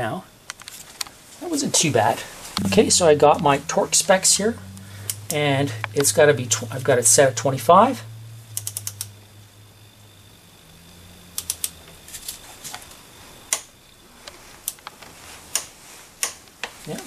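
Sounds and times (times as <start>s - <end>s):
torque wrench ratchet clicking: 8.6s - 9.1s.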